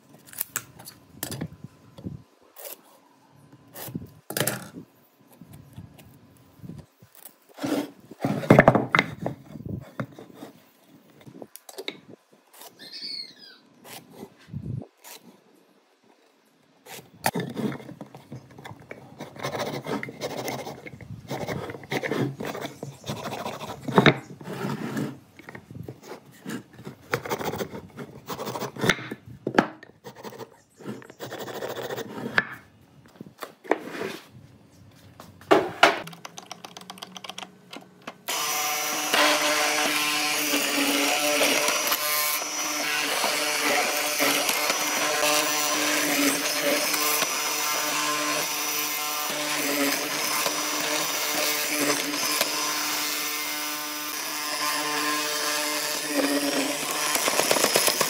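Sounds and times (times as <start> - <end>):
hand tool scraping wood: 7.5 - 11.3, 16.9 - 29.2, 30.0 - 32.7, 33.6 - 34.3
mortiser motor running: 38.3 - 58.0.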